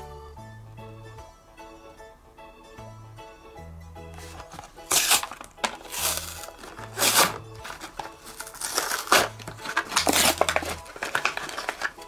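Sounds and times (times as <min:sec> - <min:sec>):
background music: 0:00.0 - 0:12.0
packaging crinkling and tearing: 0:04.2 - 0:12.0.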